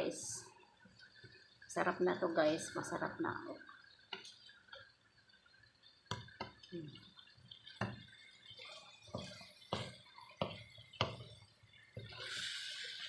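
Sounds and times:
wooden spatula knocking on pan: 6.1 - 6.6, 7.8 - 8.1, 9.1 - 11.4.

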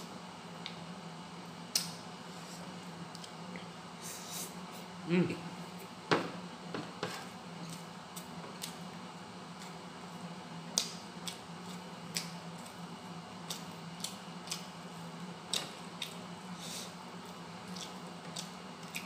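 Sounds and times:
steady low hum: 0.0 - 19.0
person chewing: 13.4 - 14.7, 17.6 - 19.0.

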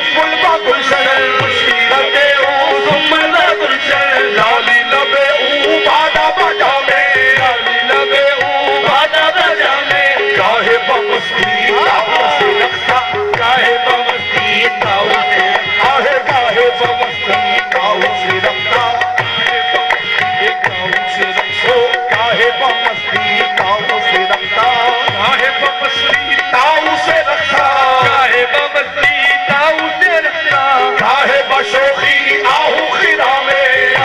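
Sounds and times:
harmonium chords: 0.0 - 34.0
tabla beating: 0.0 - 34.0
voices singing: 0.0 - 34.0.

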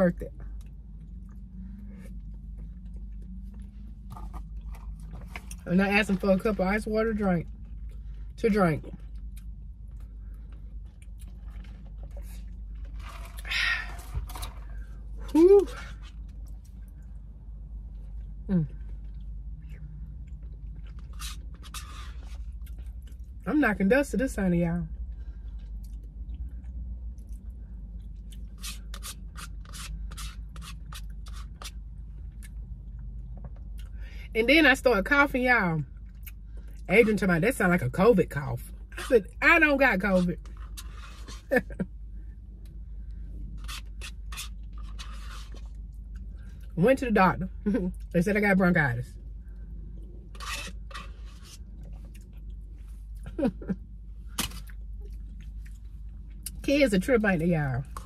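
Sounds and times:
slurping and chewing: 18.7 - 23.4, 25.4 - 32.6, 43.4 - 46.7, 49.9 - 53.2
plastic spoon scraping paper cup: 28.6 - 31.7, 40.6 - 41.6, 43.6 - 45.7, 50.3 - 51.7.

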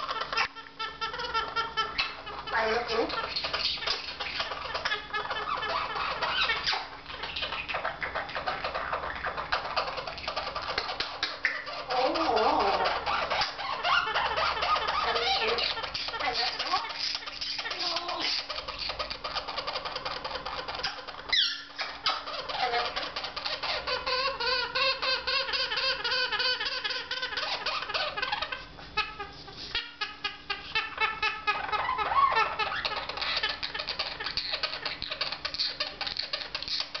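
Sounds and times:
parrot chattering and warbling: 0.0 - 37.0
parrot squeak: 0.0 - 37.0.

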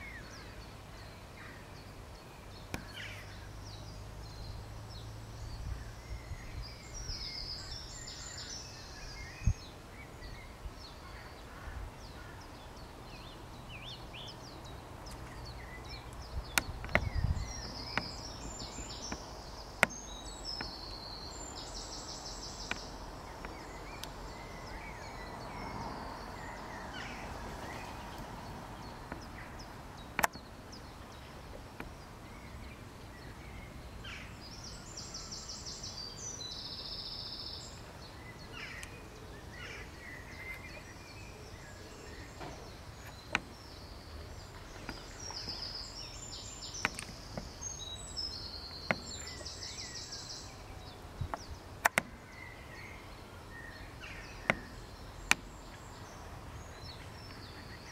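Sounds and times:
small birds chirping and trilling: 0.0 - 57.9
sharp clicks: 30.1 - 30.4, 46.7 - 47.6, 51.3 - 52.2.

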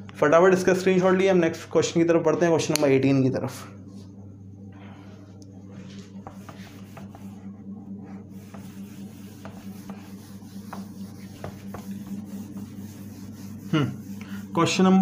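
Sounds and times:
steady low hum: 0.0 - 15.0
cloth wiping a whiteboard: 5.0 - 15.0.

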